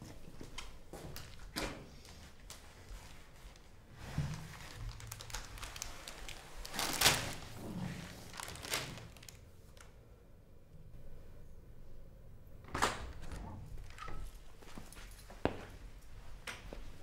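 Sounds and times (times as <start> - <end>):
clothing rustling against wall: 0.1 - 9.8.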